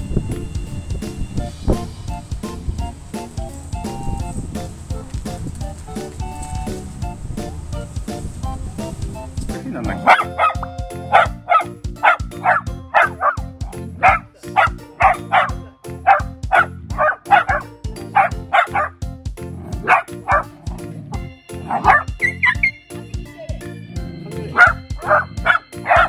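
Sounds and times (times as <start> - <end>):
background music: 0.0 - 26.0
small dogs barking: 9.9 - 19.0, 19.6 - 22.7, 24.2 - 26.0.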